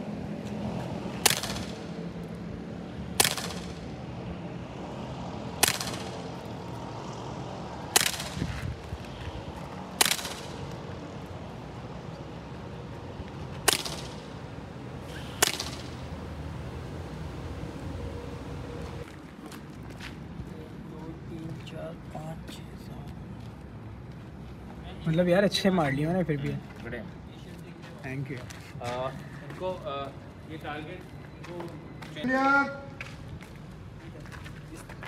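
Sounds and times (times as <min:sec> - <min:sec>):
airsoft pistol shots: 0:01.2 - 0:01.8, 0:03.2 - 0:03.9, 0:05.6 - 0:06.2, 0:07.9 - 0:08.4, 0:10.0 - 0:10.6, 0:13.6 - 0:14.3, 0:15.2 - 0:16.0.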